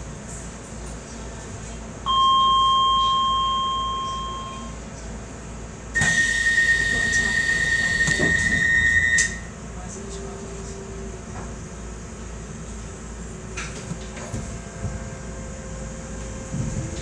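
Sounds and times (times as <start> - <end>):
high warning tone: 2.1 - 4.8, 6.0 - 9.5
train door chime: 2.1 - 4.8, 6.0 - 9.5.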